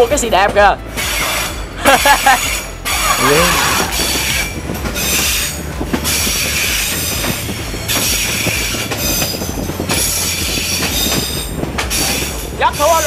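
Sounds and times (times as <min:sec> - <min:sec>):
steel wheels squealing on rails: 0:00.0 - 0:13.0
train carriages rumbling: 0:00.0 - 0:13.0.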